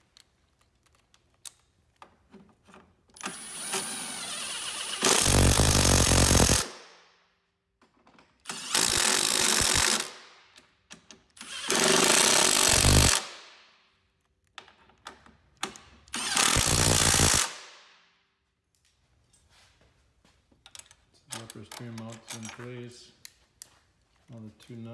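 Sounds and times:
impact driver hammering: 5.0 - 6.8, 11.5 - 13.4.

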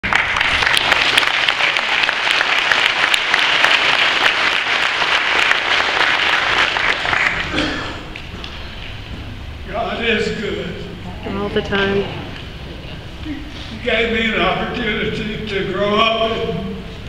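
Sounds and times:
congregation applauding: 0.0 - 9.1.

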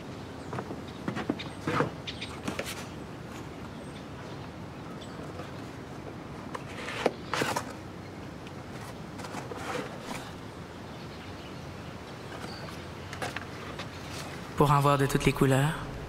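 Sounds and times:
cardboard box rustling: 6.5 - 7.8, 8.6 - 10.4.

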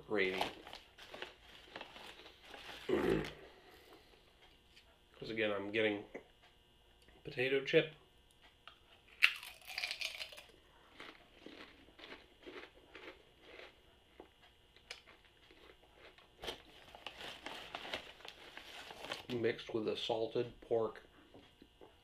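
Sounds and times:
chewing crunches: 9.1 - 17.2
potato chip crunching: 9.1 - 19.4.

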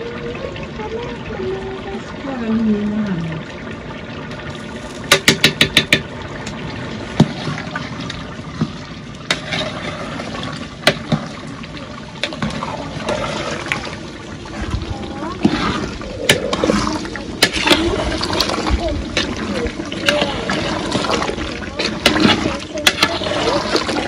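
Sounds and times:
thick stew sloshing while stirred: 12.2 - 24.0.

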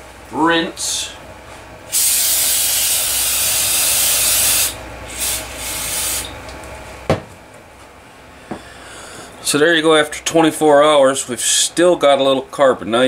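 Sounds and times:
aerosol spray hissing: 1.9 - 6.3.

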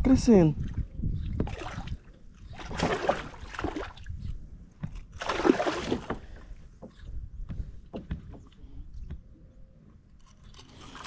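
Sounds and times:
water splashing against kayak hull: 0.6 - 4.2, 4.9 - 7.0.

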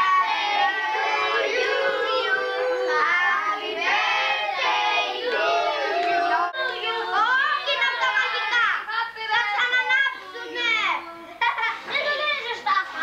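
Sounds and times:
children singing together: 0.0 - 8.6.

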